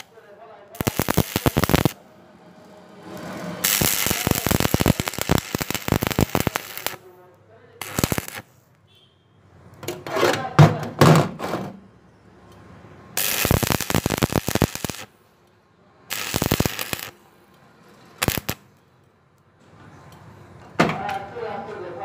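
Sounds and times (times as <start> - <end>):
welding arc crackling: 0.8 - 2.0, 3.1 - 7.1, 7.8 - 8.6, 13.2 - 15.1, 16.1 - 17.2, 18.2 - 18.7.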